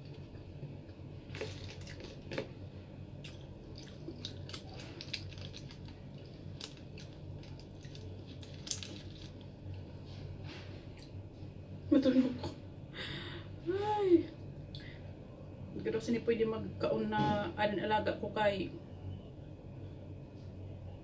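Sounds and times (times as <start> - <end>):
person chewing food: 0.0 - 9.5.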